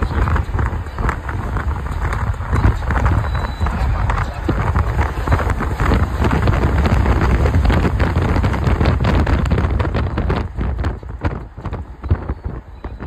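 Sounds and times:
road and vehicle noise: 0:00.0 - 0:13.0
wind buffeting microphone: 0:00.0 - 0:13.0.

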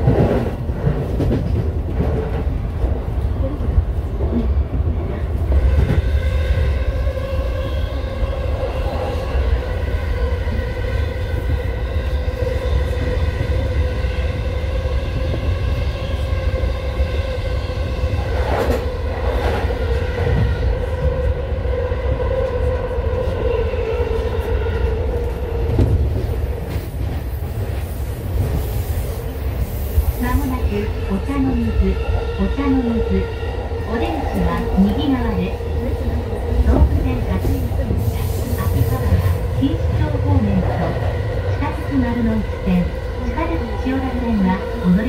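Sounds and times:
train clacks: 0:00.0 - 0:04.5
train wheels rumbling on rail: 0:00.0 - 0:45.0.

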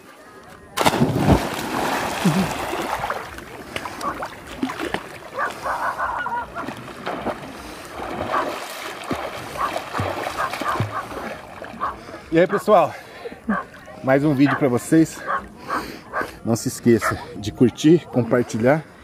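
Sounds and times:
water sloshing and splashing: 0:00.7 - 0:12.3
swimmer plunging into water: 0:00.8 - 0:05.2.

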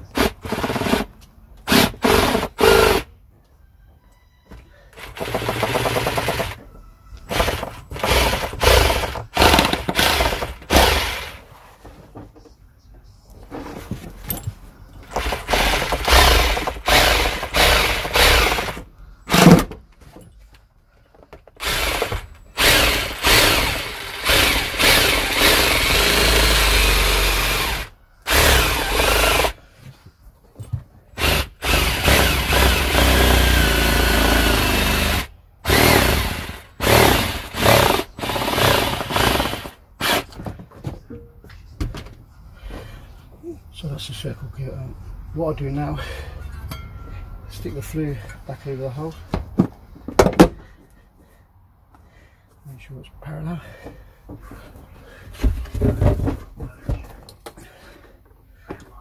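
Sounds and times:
electric jigsaw cutting: 0:01.7 - 0:03.1, 0:05.0 - 0:06.6, 0:07.3 - 0:11.4, 0:15.2 - 0:19.5, 0:21.6 - 0:29.6, 0:31.2 - 0:40.3.

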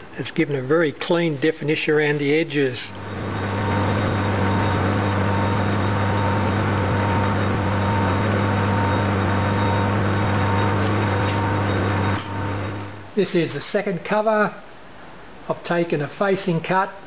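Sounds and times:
metal lathe humming: 0:02.9 - 0:13.1.

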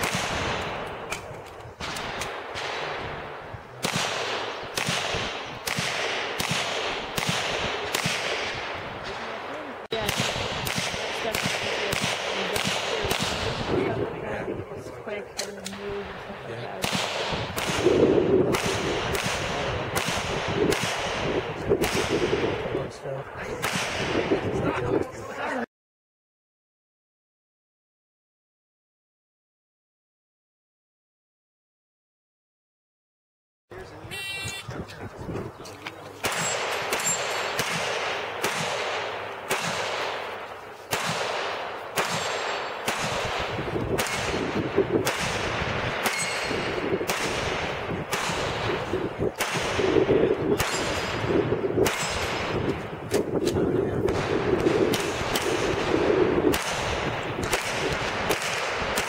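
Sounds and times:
pistol shots: 0:00.0 - 0:13.8, 0:16.8 - 0:22.8, 0:23.6 - 0:24.4, 0:36.2 - 0:59.0.

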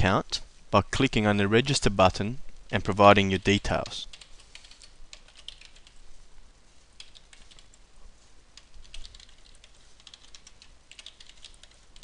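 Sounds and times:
typing on computer keyboard: 0:03.5 - 0:06.0, 0:07.0 - 0:07.8, 0:08.6 - 0:12.0.

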